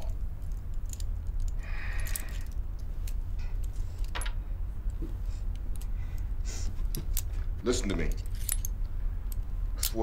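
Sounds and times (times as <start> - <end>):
metallic clicks and rattles: 0.0 - 5.9
steady low rumble: 0.0 - 10.0.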